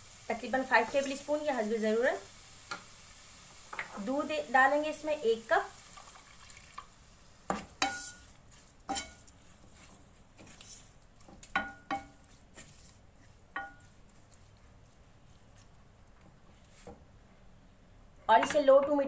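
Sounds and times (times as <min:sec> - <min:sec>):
faint sizzle: 0:00.0 - 0:19.0
spoon clinking against pan: 0:07.8 - 0:08.2, 0:08.9 - 0:09.2.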